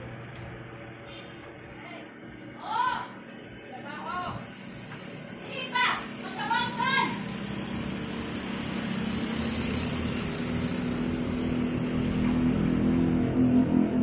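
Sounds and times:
engine humming: 3.2s - 14.0s.

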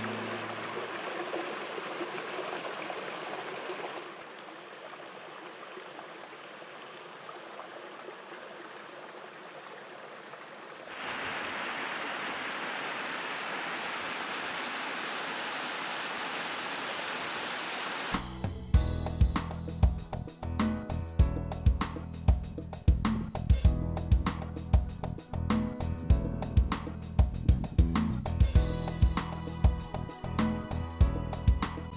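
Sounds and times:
stream water rushing over boulders: 0.0s - 18.3s.

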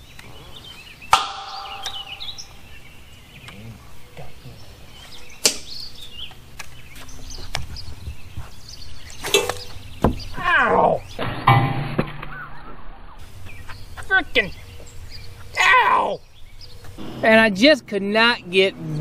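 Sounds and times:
birds chirping: 0.0s - 19.0s.

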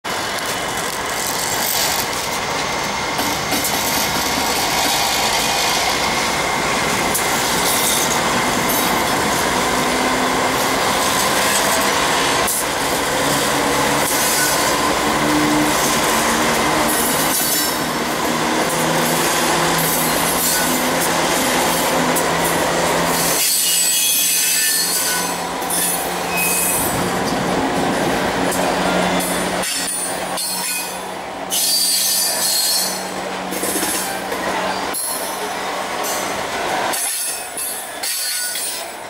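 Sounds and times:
wheel and rail noise: 0.0s - 39.0s
locomotive engine drone: 0.1s - 23.4s, 24.2s - 39.0s.

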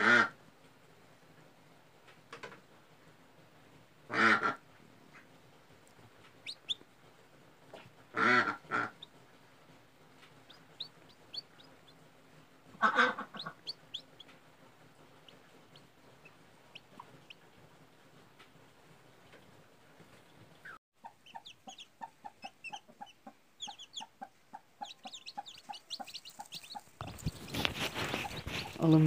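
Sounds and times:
hen clucking: 6.2s - 6.9s, 7.7s - 9.2s, 10.2s - 12.1s, 12.7s - 17.6s, 20.6s - 29.0s
chick peeping: 6.3s - 6.8s, 10.2s - 12.1s, 12.7s - 17.5s, 20.2s - 29.0s.

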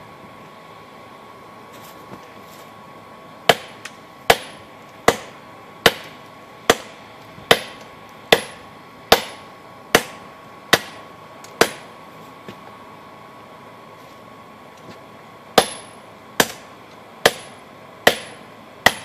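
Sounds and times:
hammer striking steel on anvil: 3.5s - 11.0s, 11.6s - 11.9s, 15.6s - 19.0s.

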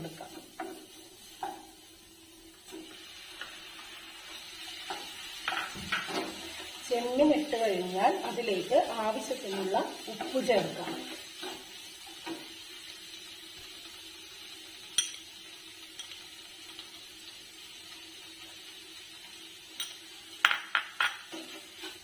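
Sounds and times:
spoon knocking and scraping pan: 0.1s - 1.8s, 4.3s - 6.8s, 9.4s - 12.6s, 19.8s - 22.0s.

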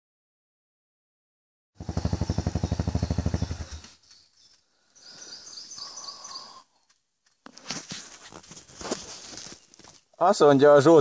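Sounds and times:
motorcycle engine running: 1.8s - 4.1s.

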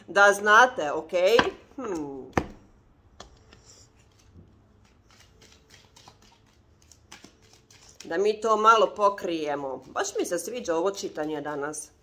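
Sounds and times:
cards clicking and rustling: 4.0s - 8.1s
person speaking: 8.0s - 12.0s.

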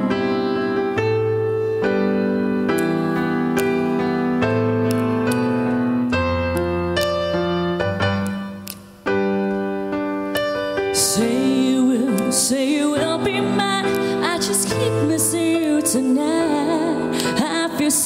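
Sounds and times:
electric keyboard chords: 0.0s - 18.0s
woman singing into microphone: 11.0s - 18.0s.

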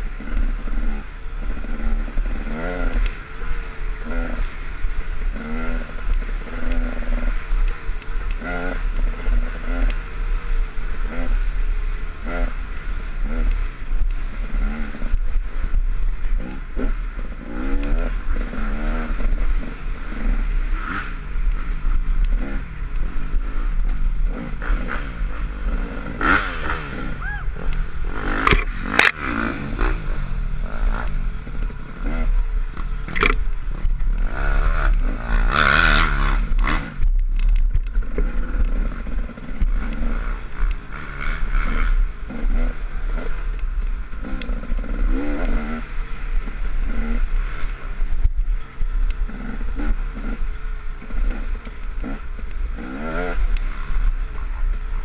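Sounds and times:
low rumble: 0.0s - 55.0s
motorcycle engine revving: 0.0s - 55.0s.

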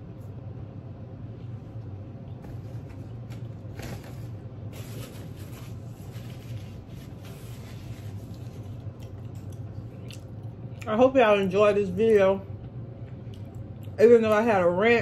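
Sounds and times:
steady low hum: 0.0s - 15.0s
person chewing food: 8.2s - 10.9s, 13.0s - 14.0s.

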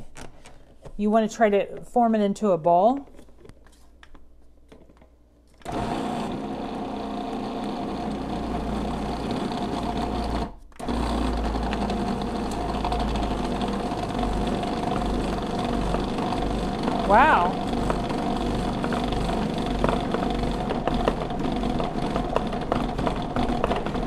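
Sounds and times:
food processor motor whining: 5.6s - 24.0s.

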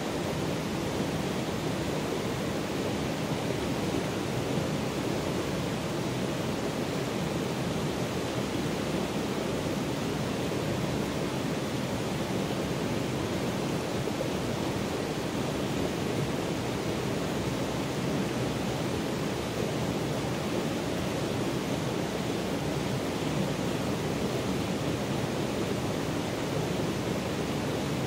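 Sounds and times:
stream water flowing over rocks: 0.0s - 28.0s.

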